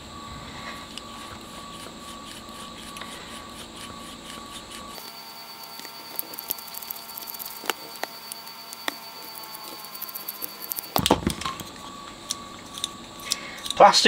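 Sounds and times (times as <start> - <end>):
potentiometer shaft clicking: 1.8 - 11.0.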